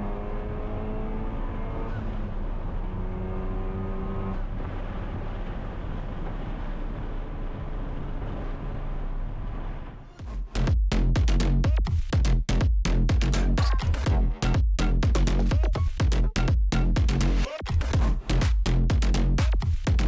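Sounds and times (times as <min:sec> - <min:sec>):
road and tyre noise: 0:00.0 - 0:10.8
car engine revving: 0:00.0 - 0:11.6.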